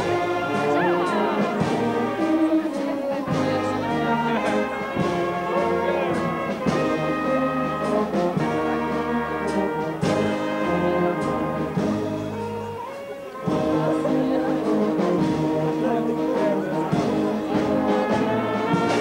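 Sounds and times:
wind band playing: 0:00.0 - 0:19.0.

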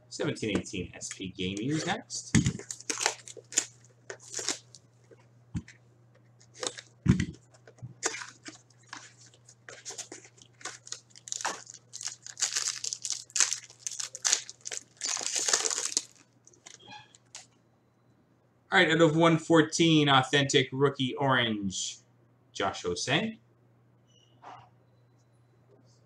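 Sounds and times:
plastic wrapping tearing and crinkling: 0:01.7 - 0:05.8, 0:06.4 - 0:17.4.

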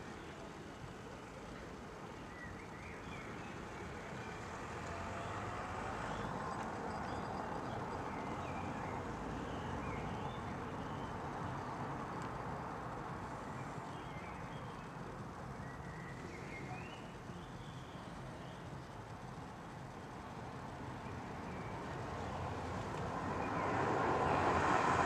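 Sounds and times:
steady rumble and hiss: 0:08.0 - 0:24.6.

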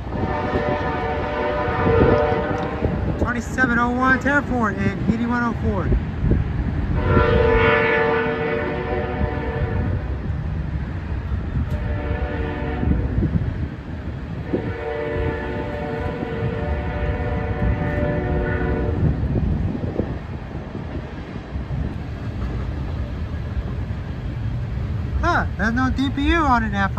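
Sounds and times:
train air horn blasts: 0:00.0 - 0:03.2, 0:06.9 - 0:10.1, 0:11.7 - 0:13.3, 0:14.4 - 0:19.2
low rumble of passing train: 0:00.0 - 0:26.9.

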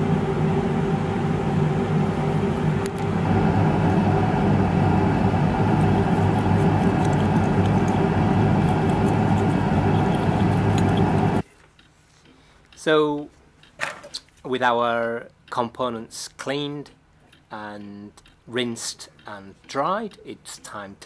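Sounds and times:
machine hum: 0:00.0 - 0:11.5
brush scrubbing ticks: 0:05.6 - 0:11.4.

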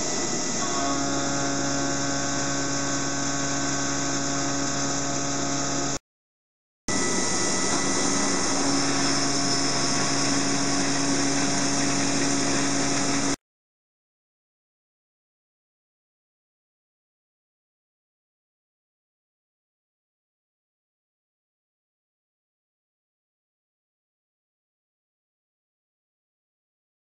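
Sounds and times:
milling machine cutting steel: 0:00.0 - 0:06.0, 0:06.9 - 0:13.4.

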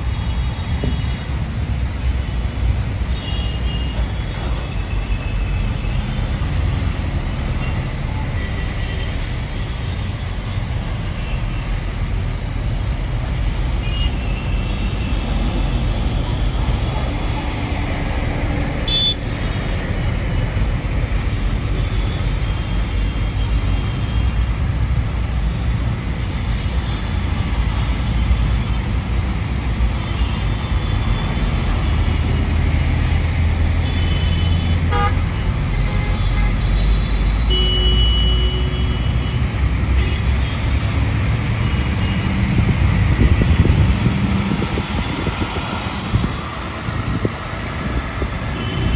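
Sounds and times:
bus engine rumble: 0:00.0 - 0:48.9
road noise: 0:00.0 - 0:48.9
vehicle horns tooting: 0:18.8 - 0:19.2, 0:33.8 - 0:39.4, 0:48.5 - 0:48.9.

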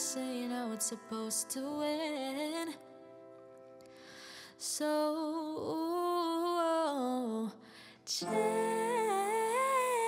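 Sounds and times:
woman singing: 0:00.0 - 0:03.1, 0:04.4 - 0:10.0
singer breathing in: 0:03.9 - 0:04.6
upright piano chords: 0:08.2 - 0:10.0.

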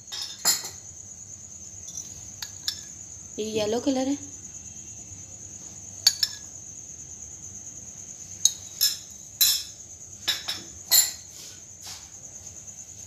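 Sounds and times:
spoon clinking against dishes: 0:06.0 - 0:06.5, 0:08.4 - 0:11.2.

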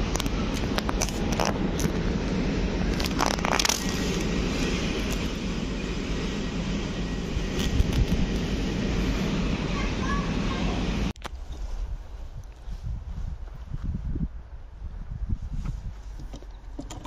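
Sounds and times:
sharp clicks and crackles: 0:00.0 - 0:02.0, 0:02.9 - 0:05.3
low rumble: 0:00.0 - 0:16.8
wind noise on microphone: 0:07.2 - 0:09.1, 0:11.2 - 0:17.0.

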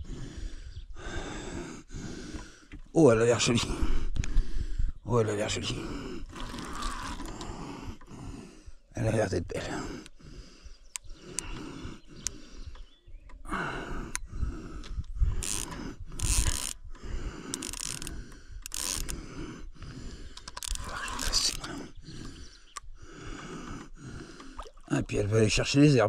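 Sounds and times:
fishing reel ratcheting: 0:06.3 - 0:07.4, 0:15.4 - 0:16.8, 0:17.5 - 0:19.2, 0:20.4 - 0:21.7.

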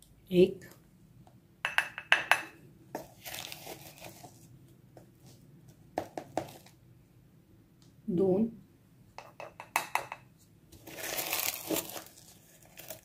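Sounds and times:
plastic spoon knocking on bowl: 0:01.6 - 0:02.5, 0:09.2 - 0:10.3.

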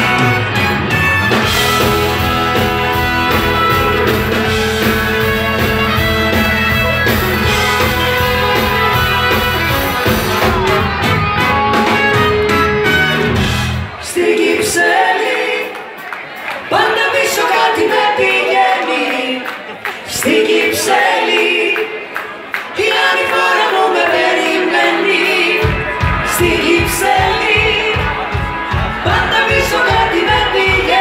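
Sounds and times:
trombones: 0:00.0 - 0:14.0
pop-rock band playing: 0:00.0 - 0:15.1, 0:25.3 - 0:31.0
drums: 0:00.0 - 0:18.8, 0:22.6 - 0:31.0
woman singing: 0:22.8 - 0:28.2, 0:29.0 - 0:31.0.

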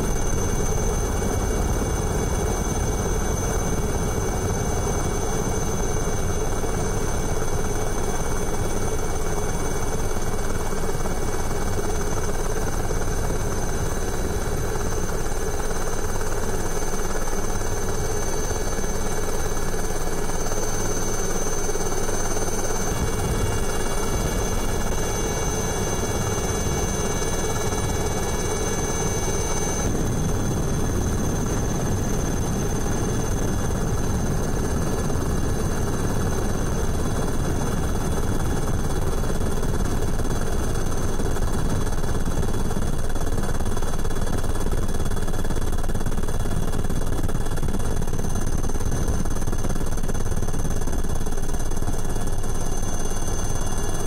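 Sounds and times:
helicopter rotor beating: 0:00.0 - 0:54.0.

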